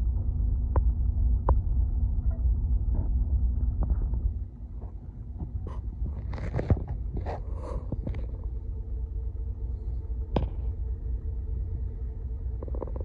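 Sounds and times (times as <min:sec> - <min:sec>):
diesel boat engine rumble: 0:00.0 - 0:13.0.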